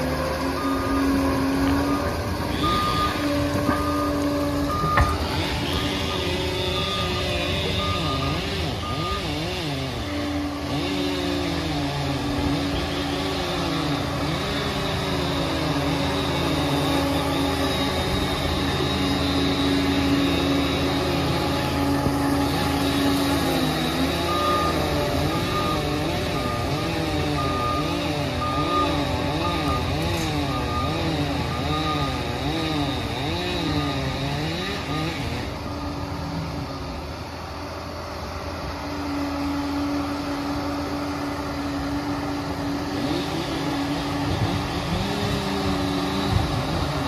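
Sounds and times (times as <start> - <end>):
reversing alarm beeping: 0.0 - 36.6
diesel engine under load: 0.0 - 47.0
steady mechanical whine: 0.0 - 47.0.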